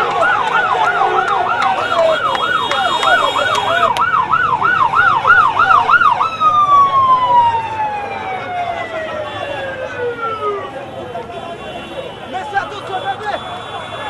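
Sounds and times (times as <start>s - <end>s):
siren yelping: 0.0s - 10.8s.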